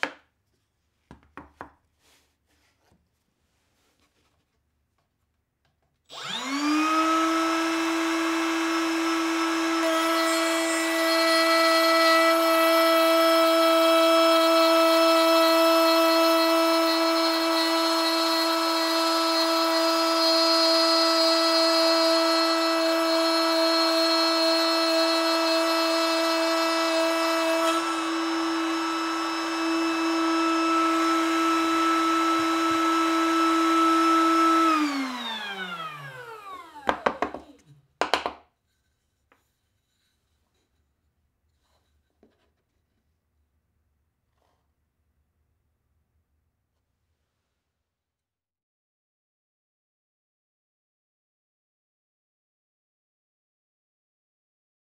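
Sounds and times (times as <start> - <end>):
router whining: 6.1 - 37.8
router winding down: 6.1 - 37.8
knocks: 36.9 - 38.4.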